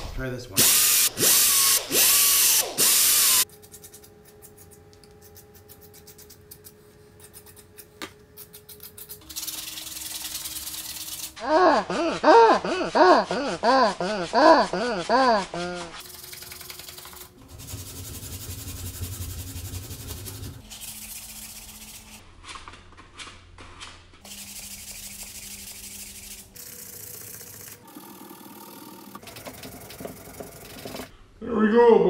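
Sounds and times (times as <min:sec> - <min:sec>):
hand sanding plastic: 0:08.5 - 0:26.6.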